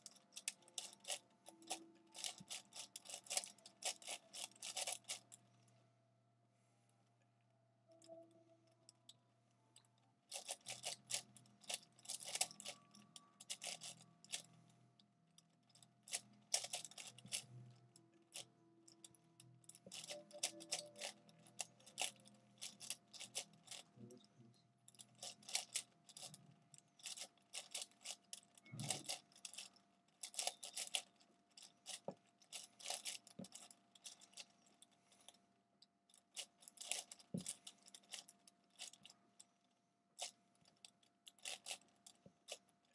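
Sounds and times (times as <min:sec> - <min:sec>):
plastic puzzle cube clicking: 0:00.0 - 0:05.2, 0:10.3 - 0:14.5, 0:15.7 - 0:17.5, 0:18.2 - 0:24.0, 0:25.0 - 0:26.4, 0:27.0 - 0:34.6, 0:36.2 - 0:39.0, 0:41.3 - 0:42.6.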